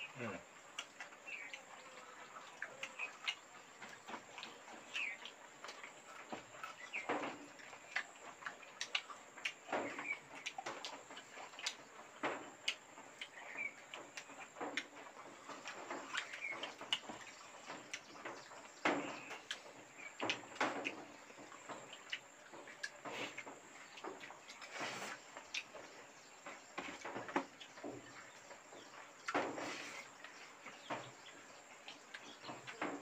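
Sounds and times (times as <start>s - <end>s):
chewing and lip-smacking: 0.6s - 27.0s.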